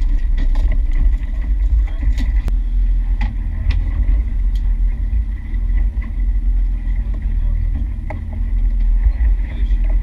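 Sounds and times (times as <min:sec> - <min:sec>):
outboard motor running: 0:00.0 - 0:10.0.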